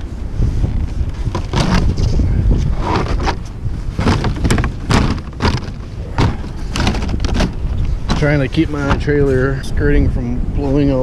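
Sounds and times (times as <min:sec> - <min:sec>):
strong wind buffeting microphone: 0:00.0 - 0:11.0
metal panels clattering: 0:03.0 - 0:09.1.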